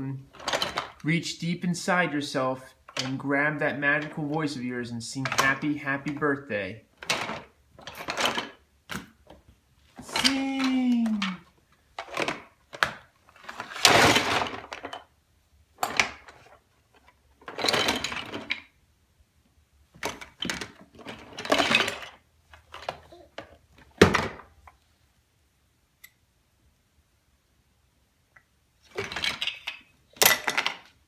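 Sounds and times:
toys rattling in plastic bin: 0.3 - 1.1, 7.0 - 9.1, 10.0 - 15.0, 17.4 - 18.6, 20.0 - 23.0, 28.9 - 31.0.

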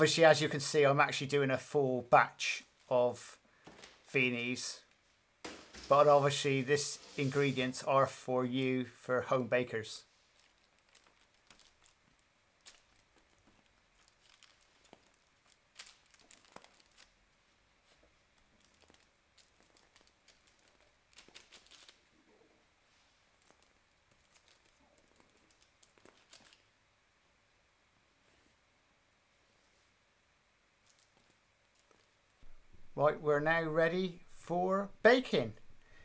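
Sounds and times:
piping bag crinkling: 9.8 - 22.4, 23.2 - 26.9, 30.8 - 36.0.

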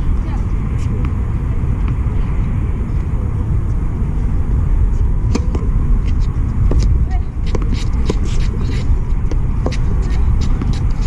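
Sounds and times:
steady low rumble: 0.0 - 11.0
tennis racket hitting ball: 6.7 - 11.0.

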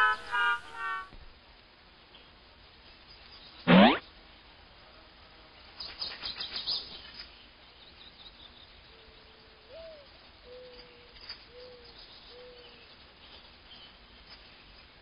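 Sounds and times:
cartoon bird chirps: 3.7 - 4.0.

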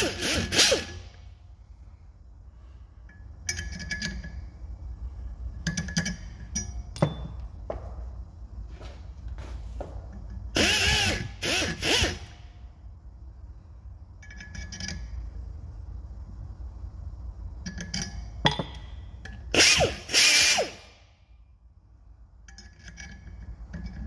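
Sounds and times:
pneumatic die grinder whirring: 0.0 - 1.2, 10.5 - 12.4, 19.5 - 21.0.

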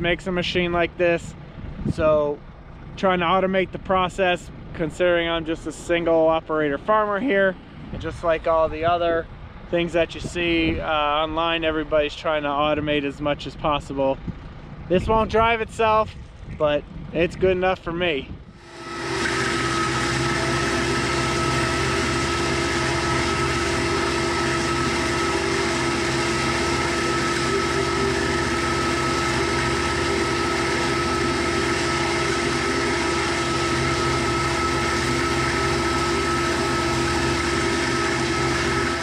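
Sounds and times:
strawberry runner cutter drone: 18.4 - 39.0.

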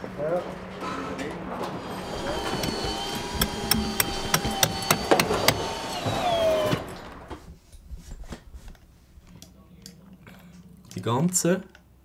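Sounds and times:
steady machine whine: 0.5 - 7.3.

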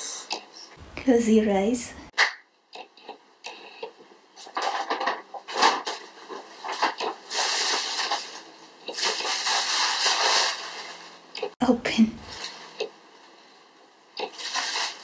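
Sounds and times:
crinkly gift wrap rustling: 4.4 - 11.6, 14.2 - 15.0.

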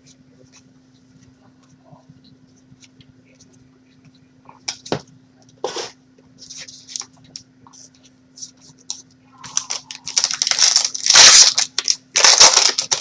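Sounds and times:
faint steady hum: 0.0 - 13.0
cards clicking and rustling: 8.4 - 13.0.

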